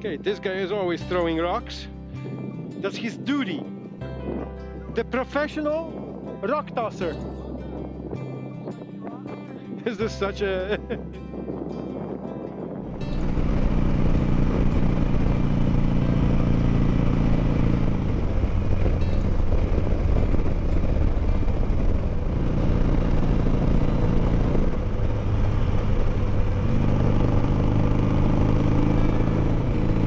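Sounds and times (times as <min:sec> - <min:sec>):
wind noise: 0:02.0 - 0:30.0
motorcycle engine running: 0:10.6 - 0:30.0.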